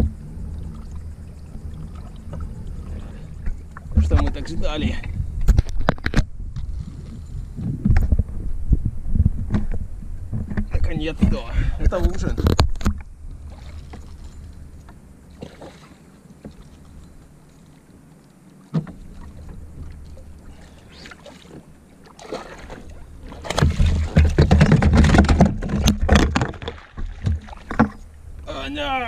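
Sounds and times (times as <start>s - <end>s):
water lapping: 0.0s - 5.2s, 13.3s - 28.4s
fish splashing: 13.4s - 28.1s
knocks against boat: 18.7s - 19.0s, 22.4s - 28.0s.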